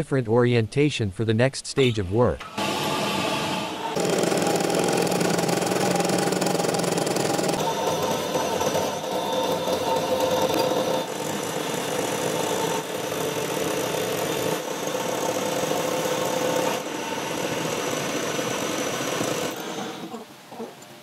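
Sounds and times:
metal lathe humming and whining: 0:02.4 - 0:20.2.

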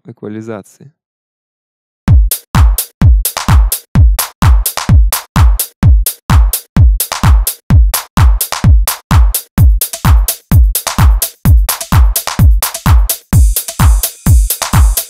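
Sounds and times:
electronic dance music: 0:02.1 - 0:15.0.

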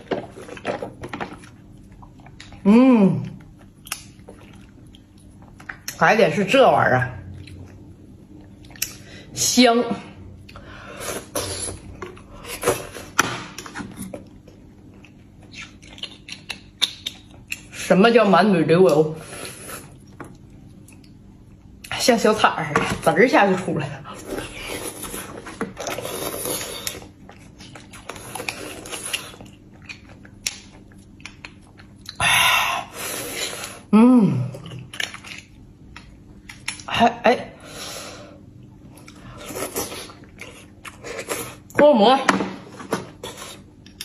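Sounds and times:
wet mouth eating sounds: 0:15.0 - 0:17.8, 0:24.3 - 0:33.9.

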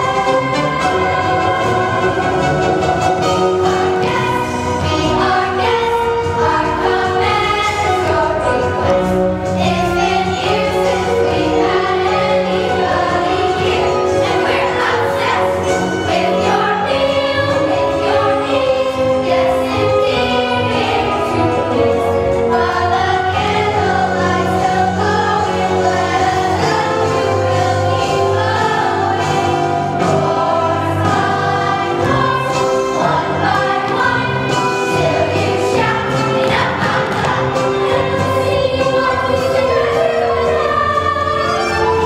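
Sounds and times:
instrumental accompaniment: 0:00.0 - 0:42.0
young choir singing: 0:00.0 - 0:42.0.

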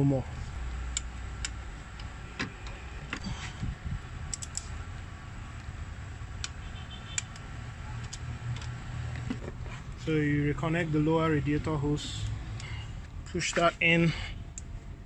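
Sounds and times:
torque wrench clicking: 0:04.3 - 0:04.8.

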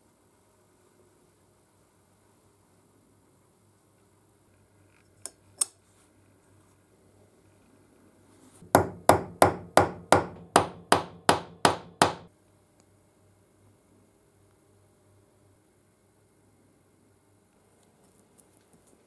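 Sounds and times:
hammer tapping metal pins: 0:08.8 - 0:12.3.

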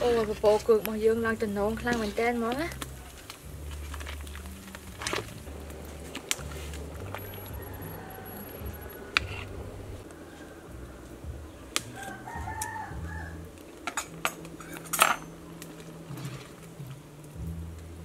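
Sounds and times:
rooster crowing: 0:07.2 - 0:11.1, 0:11.9 - 0:13.5.

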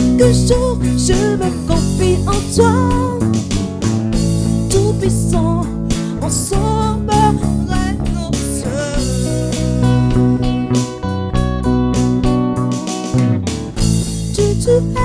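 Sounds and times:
bass guitar: 0:00.0 - 0:15.0
electric guitar: 0:00.0 - 0:15.0
electronic drums: 0:00.0 - 0:15.0
person singing wavering melody: 0:14.3 - 0:15.0.

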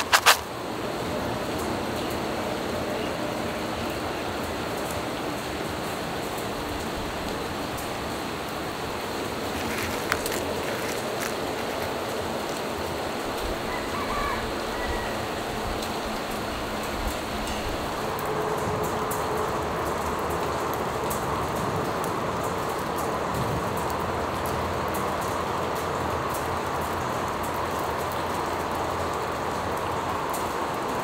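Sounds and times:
peanuts clicking in plastic tray: 0:00.0 - 0:00.4
rain-like hiss: 0:00.0 - 0:31.0.

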